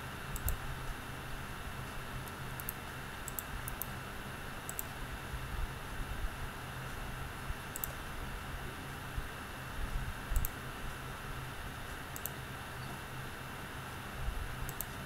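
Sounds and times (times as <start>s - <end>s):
faint hum: 0.0s - 15.0s
computer mouse clicking: 0.3s - 0.6s, 2.2s - 4.0s, 4.7s - 4.9s, 7.7s - 8.0s, 10.4s - 10.6s, 12.1s - 12.4s, 14.6s - 15.0s.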